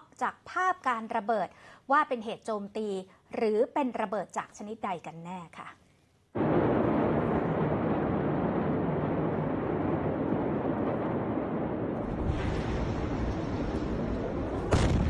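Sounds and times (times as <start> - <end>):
rushing rumbling outdoor noise: 6.4 - 15.0.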